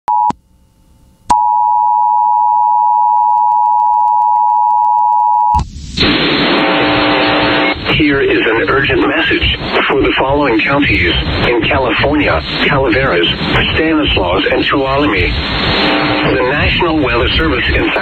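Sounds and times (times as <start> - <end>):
rush of noise: 5.6 - 18.0.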